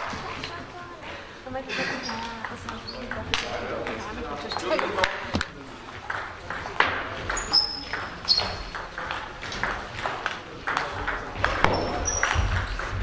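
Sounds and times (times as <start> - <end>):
table tennis ball clicking: 2.1 - 13.0
short high squeaks: 7.4 - 8.7.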